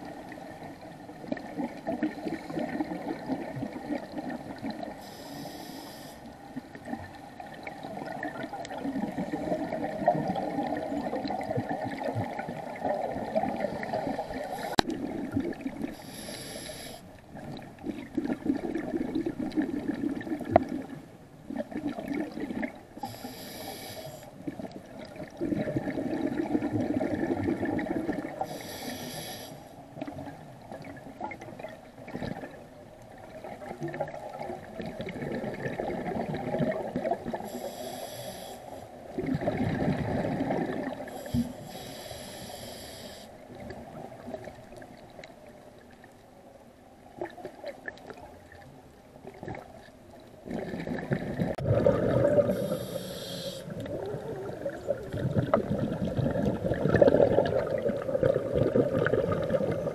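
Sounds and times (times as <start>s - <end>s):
regulator inhale hisses: 5.0s - 6.4s, 13.8s - 14.8s, 15.9s - 17.1s, 23.0s - 24.3s, 28.4s - 29.8s, 37.4s - 39.0s, 41.1s - 43.4s, 52.5s - 53.8s
bubbling exhaled air: 39.2s - 43.2s, 50.5s - 59.9s.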